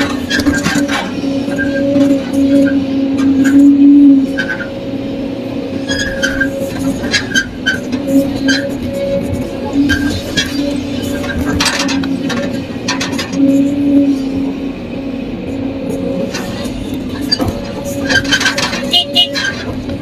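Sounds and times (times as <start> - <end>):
sharp clanks and rattles: 0.0 - 4.8, 5.7 - 14.5, 15.4 - 20.0
excavator engine and hydraulics droning: 0.0 - 20.0.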